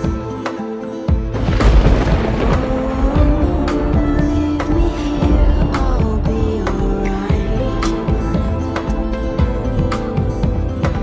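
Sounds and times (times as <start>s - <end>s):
heavy low rumble: 1.4s - 8.7s.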